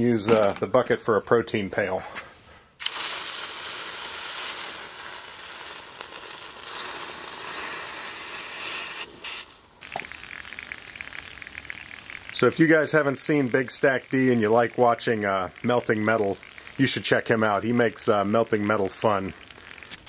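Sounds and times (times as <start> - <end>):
steam hissing: 2.8 - 14.8
bubbling sizzle: 2.8 - 20.0.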